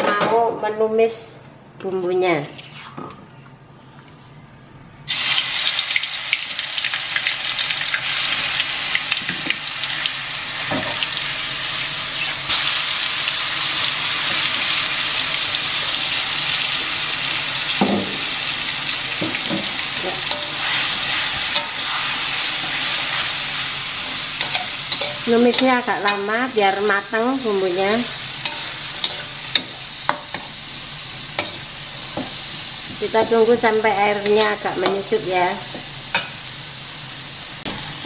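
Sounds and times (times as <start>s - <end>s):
paste sizzling in hot oil: 5.1s - 35.3s
spatula scraping wok: 19.3s - 33.4s.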